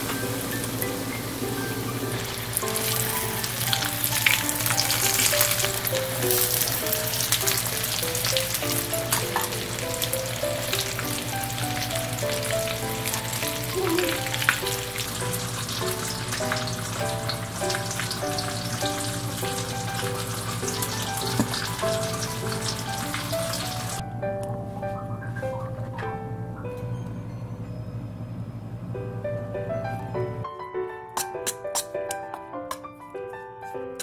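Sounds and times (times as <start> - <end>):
fish sizzling in hot oil: 0.0 - 24.0
light background music: 0.0 - 34.0.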